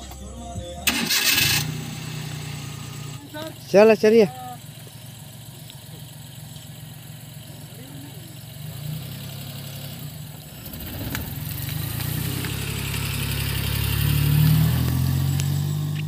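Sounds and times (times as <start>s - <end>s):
van engine driving past: 0.7s - 16.0s.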